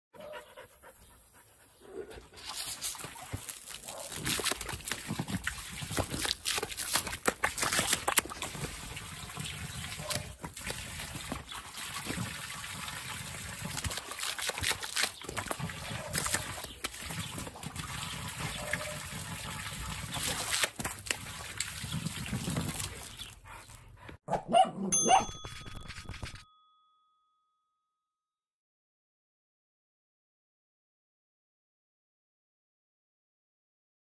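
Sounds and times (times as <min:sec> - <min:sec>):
dog splashing at water: 0:02.4 - 0:23.8
water jet splashing into pool: 0:02.5 - 0:23.1.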